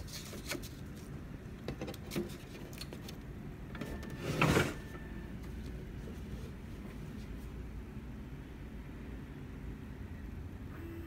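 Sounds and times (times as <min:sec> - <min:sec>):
faint steady high tone: 0:10.2 - 0:11.0.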